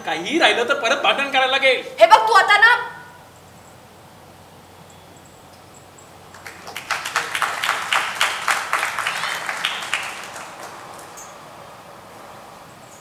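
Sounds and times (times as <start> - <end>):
audience applauding: 6.3 - 11.3.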